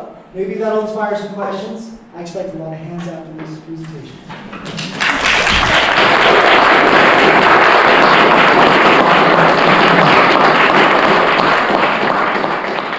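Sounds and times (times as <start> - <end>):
audience applauding: 4.6 - 12.9.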